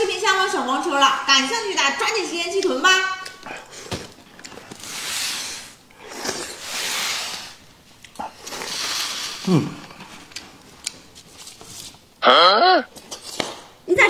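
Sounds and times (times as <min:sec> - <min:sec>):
man slurping food: 0:04.8 - 0:07.6.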